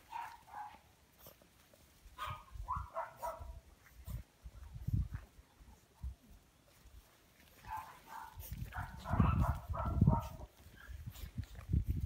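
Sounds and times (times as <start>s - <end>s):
puppies yipping and barking: 0.0s - 4.2s, 7.5s - 11.6s.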